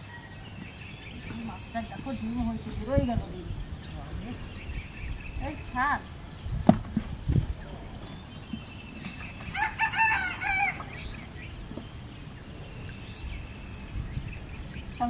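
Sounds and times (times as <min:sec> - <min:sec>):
dull thumps: 0:06.6 - 0:07.5
rooster crowing: 0:09.5 - 0:11.0.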